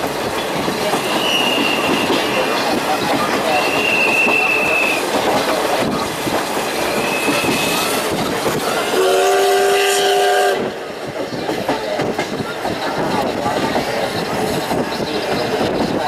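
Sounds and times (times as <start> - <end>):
clickety-clack of train wheels: 0.0 - 16.0
steam locomotive whistle blast: 1.1 - 2.4, 3.6 - 5.0, 7.0 - 7.9, 8.8 - 10.7
high wheel squeals: 6.8 - 8.1.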